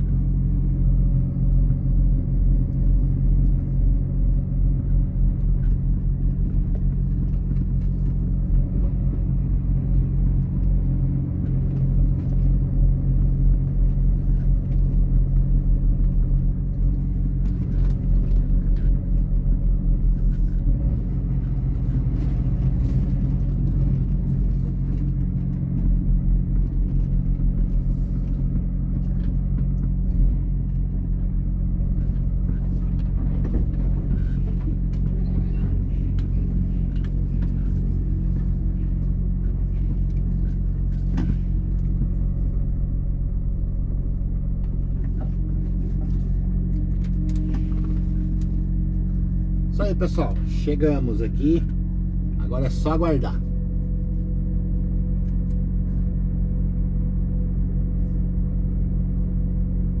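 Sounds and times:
truck diesel engine running: 0:00.0 - 1:00.0.

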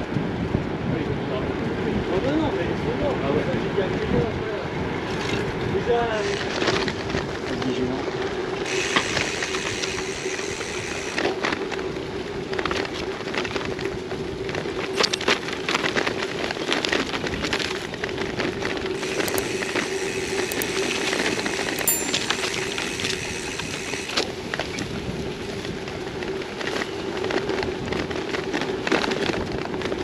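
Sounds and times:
bike tyres crackling over gravel: 0:06.2 - 0:30.0
scattered clicks: 0:18.9 - 0:24.2
steady hum: 0:19.0 - 0:24.2.

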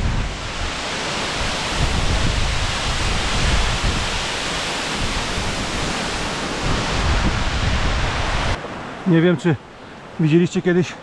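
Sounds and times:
wind buffeting microphone: 0:00.0 - 0:08.6
waterfall rushing: 0:00.0 - 0:11.0.

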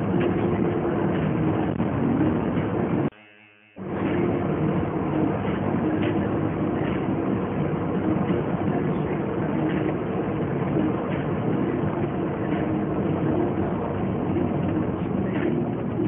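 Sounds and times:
car engine hum: 0:00.0 - 0:03.1, 0:03.8 - 0:16.0
tyre and road noise: 0:00.0 - 0:03.2, 0:03.8 - 0:16.0.

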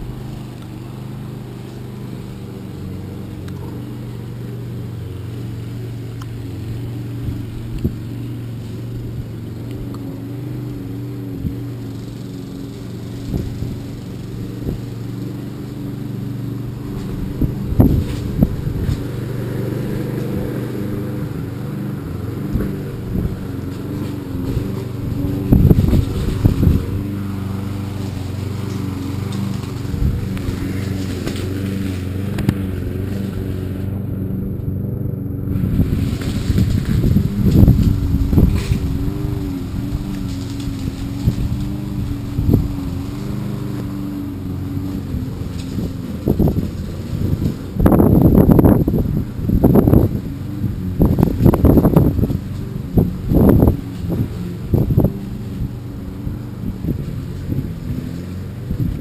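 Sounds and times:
motor humming: 0:00.0 - 0:59.0
knocks and rustles: 0:22.4 - 0:33.7, 0:35.5 - 0:48.9.

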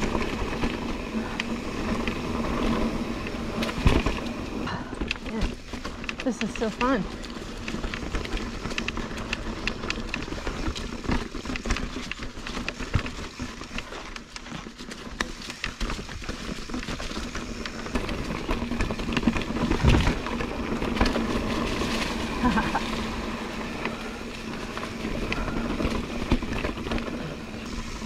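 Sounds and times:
bike clicks and rattles: 0:00.0 - 0:28.0
bike tyres on dirt: 0:00.0 - 0:28.0.

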